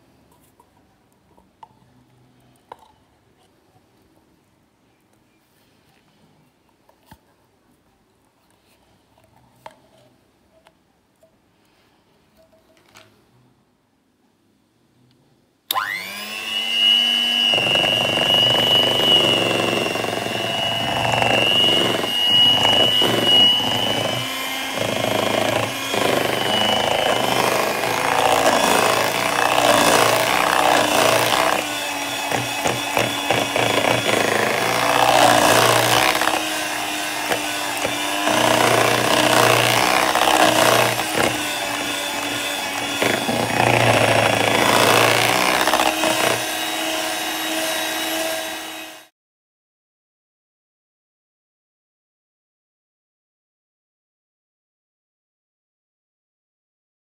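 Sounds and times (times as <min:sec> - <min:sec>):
electric hand mixer whining: 0:15.7 - 0:49.1.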